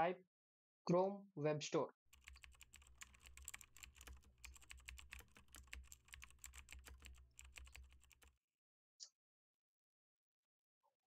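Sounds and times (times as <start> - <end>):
typing on computer keyboard: 2.2 - 8.3.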